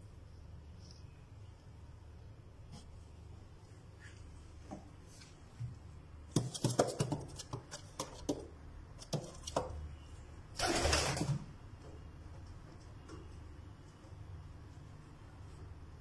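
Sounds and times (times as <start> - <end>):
bird feet tapping on wooden floor: 6.3 - 9.9.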